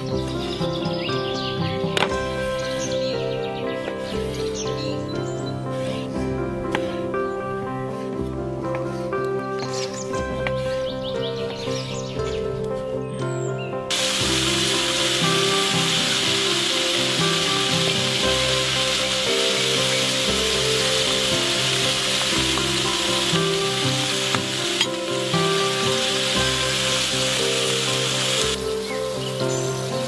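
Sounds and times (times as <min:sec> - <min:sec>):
background music: 0:00.0 - 0:30.0
vegetables sizzling in hot oil: 0:13.9 - 0:30.0.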